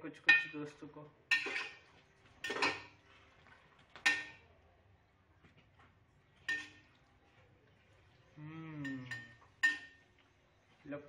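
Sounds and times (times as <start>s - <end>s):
spoon scraping metal pot: 1.3s - 3.1s, 6.4s - 7.0s.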